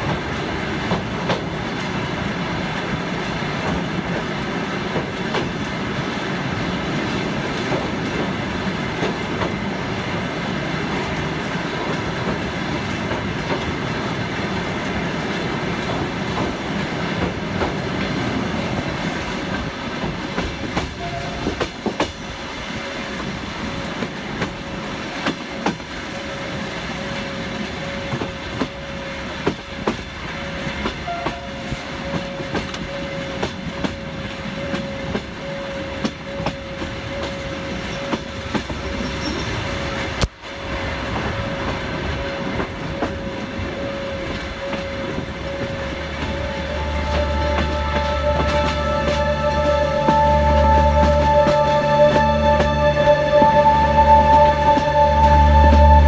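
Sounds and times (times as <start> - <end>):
train wheels rumbling on rails: 0.0 - 56.0
thin steady high tone: 43.8 - 56.0.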